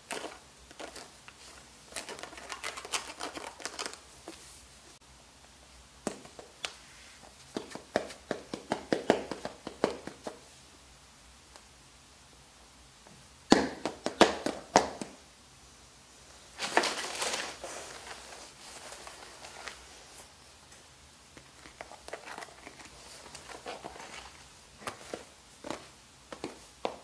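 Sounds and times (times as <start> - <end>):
sneakers tapping on tiled floor: 25.1 - 27.0.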